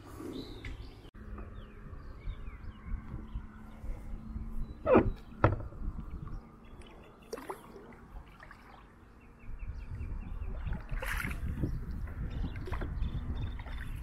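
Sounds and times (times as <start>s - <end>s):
kayak paddle splashes: 10.6s - 11.6s.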